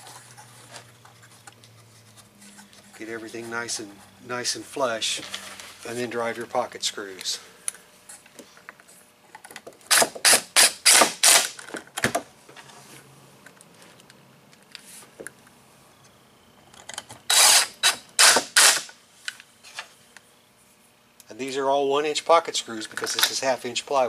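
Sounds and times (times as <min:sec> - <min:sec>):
impact driver hammering screws: 0:09.9 - 0:11.6, 0:17.3 - 0:18.9.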